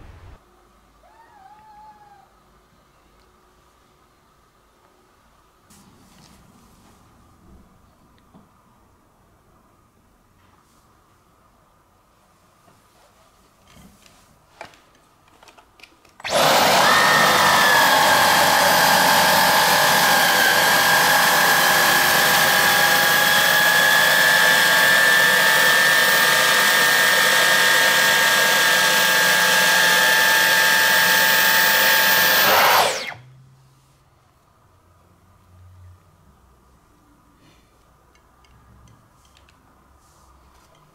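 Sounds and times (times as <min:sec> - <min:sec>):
vacuum cleaner whining: 0:16.2 - 0:33.3.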